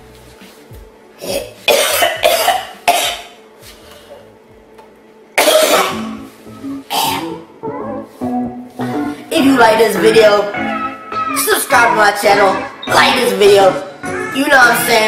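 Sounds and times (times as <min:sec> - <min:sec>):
man coughing hard: 0:01.2 - 0:03.3, 0:05.4 - 0:06.1, 0:06.9 - 0:07.4.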